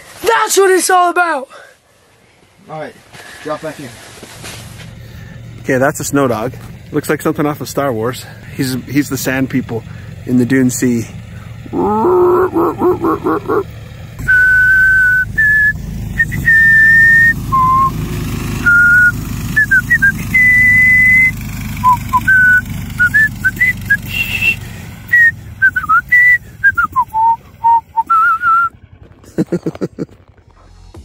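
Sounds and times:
person whistling a tune: 14.2s - 18.0s, 18.6s - 28.7s.

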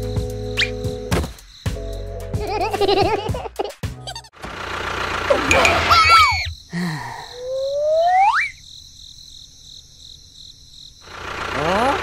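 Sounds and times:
crickets chirping: 0.0s - 3.0s, 5.1s - 12.0s
cartoon rising glide effect: 5.3s - 6.5s, 7.4s - 8.6s.

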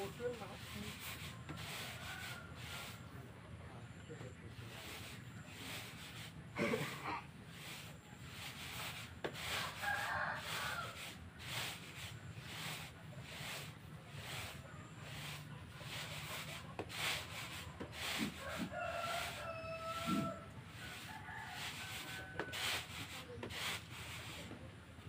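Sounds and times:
rooster crowing: 9.5s - 11.1s, 18.4s - 22.9s.

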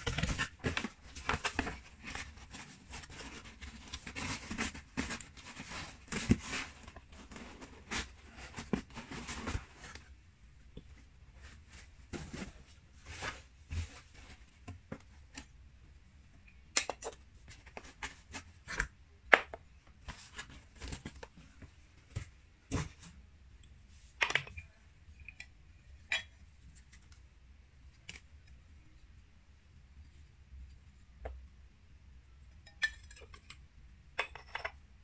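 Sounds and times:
cardboard and paper rustling: 0.0s - 10.2s, 11.3s - 15.5s, 20.0s - 23.2s.

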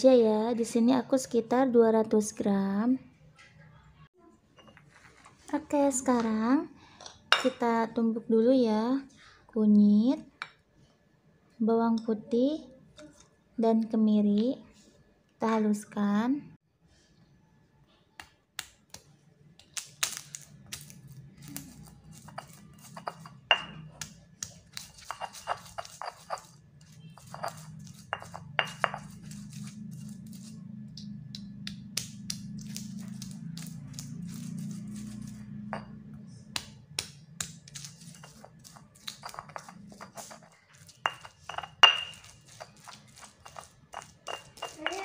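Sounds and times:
stone pestle grinding spices: 20.7s - 45.0s
stone pestle pounding in mortar: 27.2s - 29.5s, 36.6s - 45.0s.

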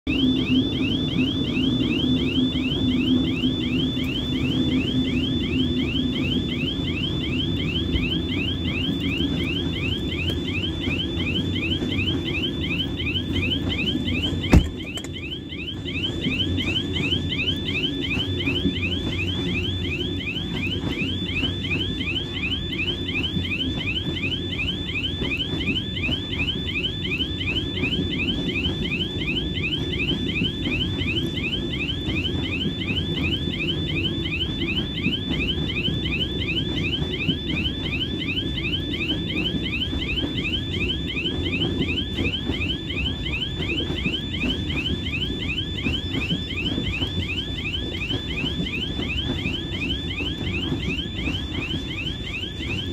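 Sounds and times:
level crossing warning tone: 0.0s - 52.9s.

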